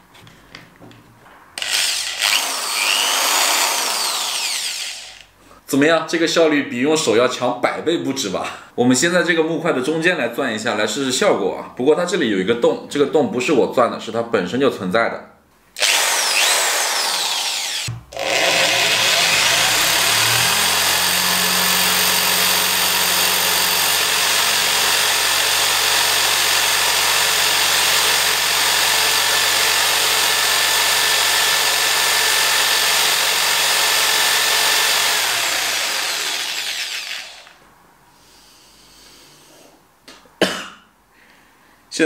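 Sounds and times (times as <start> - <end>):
electric drill running under load: 1.6 - 5.3, 15.8 - 37.6.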